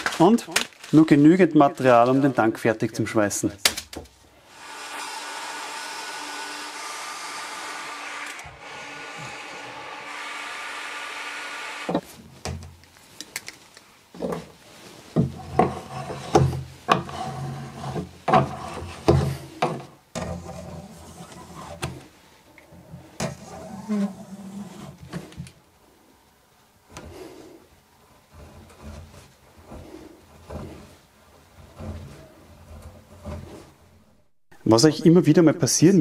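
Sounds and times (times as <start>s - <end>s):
power tool cutting plastic: 4.5s - 12.0s
hand tools scraping plastic: 15.1s - 22.1s, 22.8s - 25.6s, 28.1s - 33.9s.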